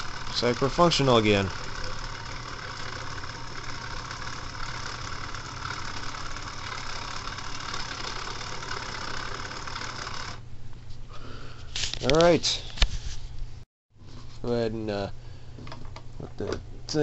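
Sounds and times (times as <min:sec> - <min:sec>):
small motor humming and whirring: 0:00.0 - 0:10.4.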